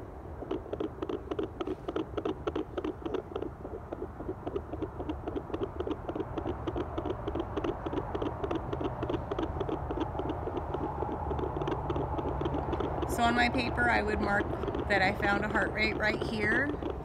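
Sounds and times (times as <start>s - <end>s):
fetal doppler heartbeat pulsing: 0.0s - 17.0s.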